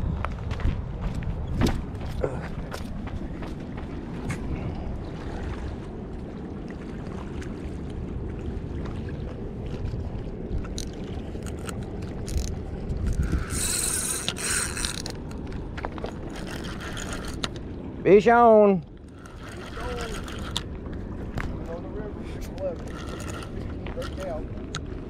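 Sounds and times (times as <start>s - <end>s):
wind rumble on microphone: 0.0s - 18.1s, 18.9s - 25.0s
fishing reel clicks: 10.8s - 15.4s, 16.3s - 17.6s, 19.1s - 20.6s, 22.8s - 24.3s
high rasp of reel: 13.1s - 15.2s, 16.3s - 17.5s, 19.1s - 20.6s, 22.8s - 24.3s.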